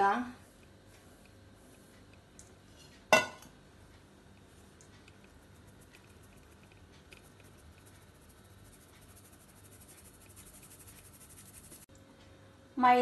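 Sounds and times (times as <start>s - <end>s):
metal sieve being shaken: 7.2s - 11.9s.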